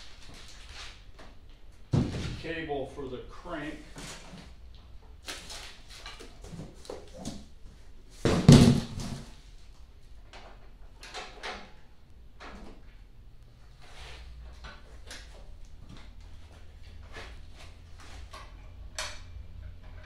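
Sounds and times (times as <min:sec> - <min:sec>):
packaging rustling and scraping: 0:00.0 - 0:01.1, 0:05.2 - 0:07.5
cardboard thump: 0:01.9 - 0:02.4, 0:08.2 - 0:09.3.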